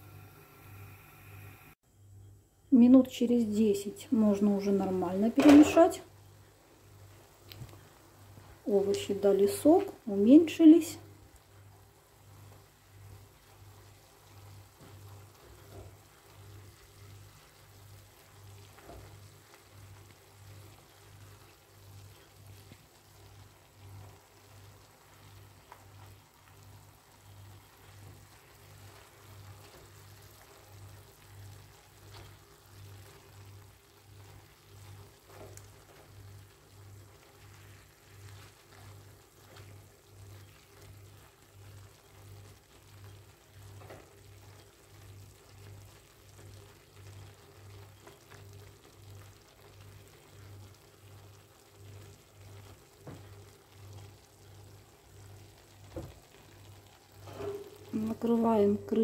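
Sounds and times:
food sizzling in a frying pan: 0.0s - 1.8s, 2.8s - 59.0s.

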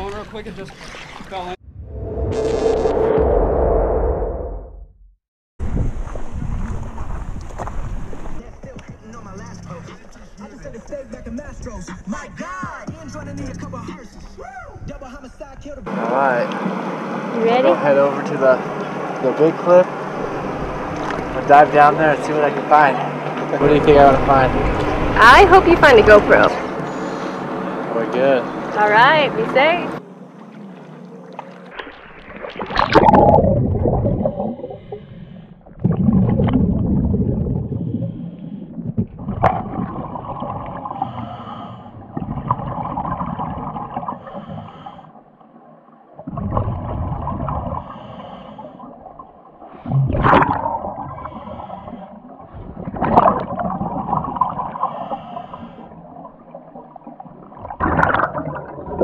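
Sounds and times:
scuba regulator breathing: 26.7s - 27.6s, 34.7s - 35.7s, 37.7s - 38.9s, 40.8s - 42.0s, 44.1s - 45.2s, 47.6s - 49.0s, 51.0s - 52.3s, 54.7s - 56.1s
air bubbles gurgling: 31.3s - 44.4s, 46.2s - 48.0s, 48.8s - 59.0s.

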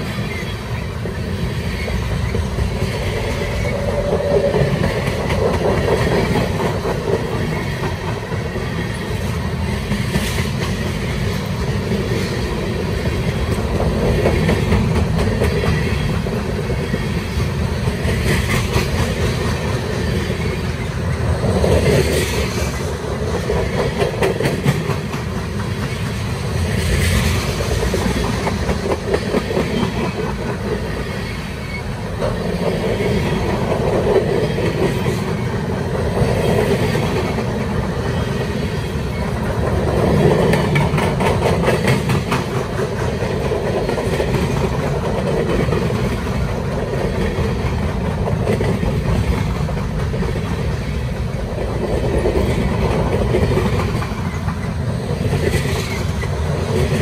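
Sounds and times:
rapid clicking of wheels on track: 0.0s - 57.0s
train wheels rumbling on rails: 0.0s - 57.0s.

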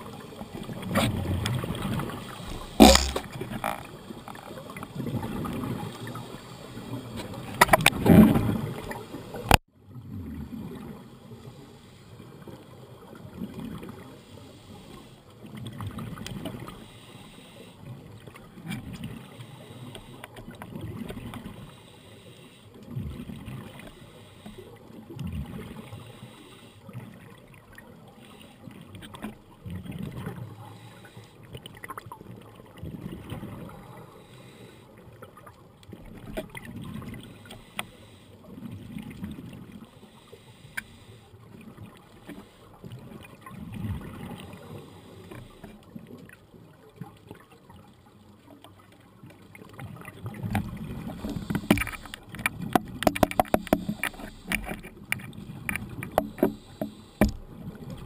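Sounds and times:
underwater exhaled bubbles: 0.0s - 11.6s, 22.8s - 26.2s, 41.3s - 58.0s.

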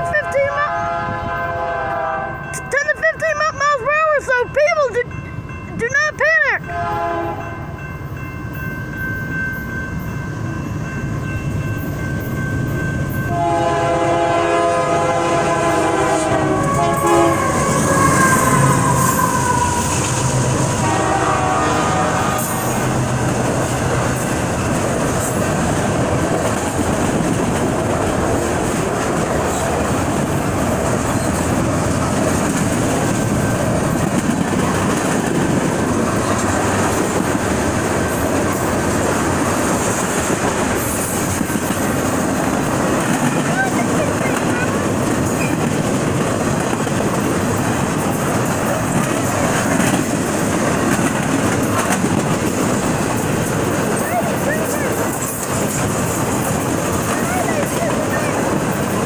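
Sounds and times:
train horn blasts: 0.0s - 2.7s, 6.6s - 7.9s, 13.3s - 23.1s
freight cars rumbling and clattering: 22.4s - 59.0s.

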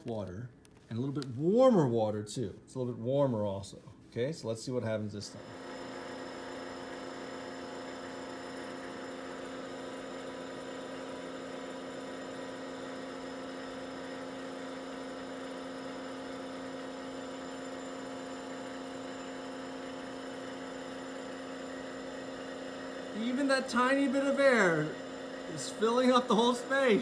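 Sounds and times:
electric vacuum pump humming: 5.2s - 27.0s.

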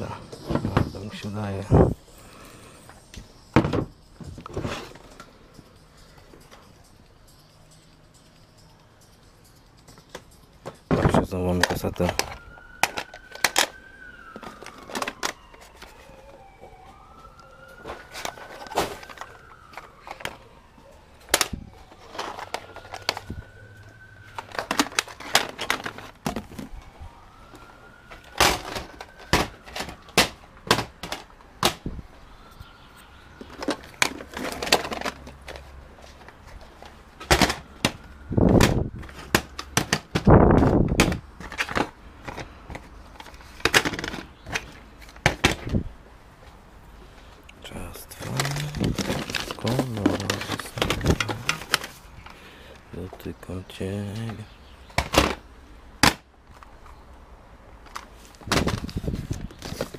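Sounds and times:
faint siren wailing: 0.0s - 6.9s, 10.8s - 45.2s, 46.6s - 54.8s
rustling scrape: 4.2s - 5.2s
plastic cassette cases clacking: 9.8s - 16.0s, 21.2s - 23.5s, 24.3s - 26.8s, 28.1s - 31.9s, 33.4s - 45.8s, 48.0s - 53.2s, 54.0s - 57.0s, 57.8s - 59.9s.

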